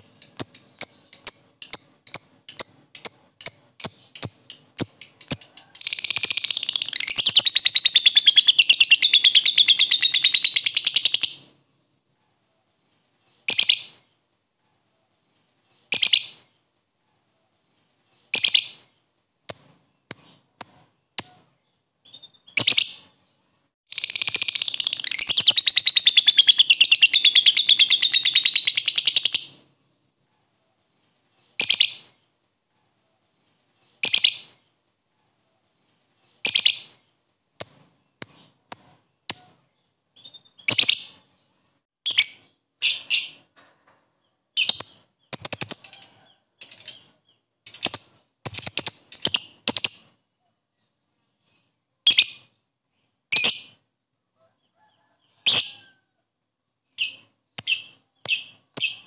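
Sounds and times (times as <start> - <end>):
lovebird chattering trill: 0.0 - 11.4
shrill bird chirps: 0.0 - 11.6, 18.2 - 29.7, 35.8 - 43.5, 44.6 - 53.8, 56.9 - 59.0.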